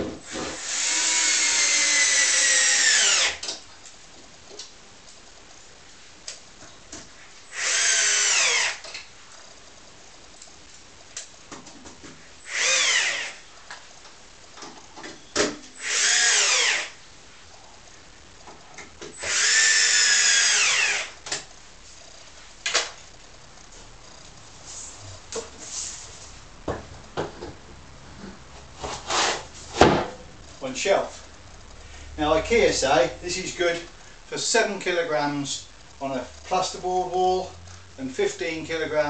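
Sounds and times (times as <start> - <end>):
drill motor whine: 0.3 - 3.4, 7.5 - 9.0, 12.4 - 13.5, 15.8 - 17.0, 19.2 - 21.2.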